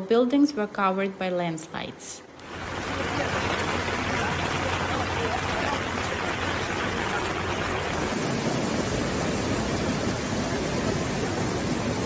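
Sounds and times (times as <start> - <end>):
floodwater rushing: 2.4 - 12.0.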